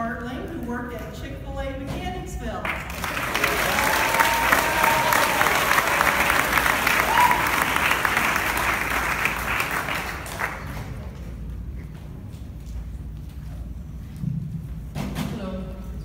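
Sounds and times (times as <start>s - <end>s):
audience applauding: 2.7s - 11.1s.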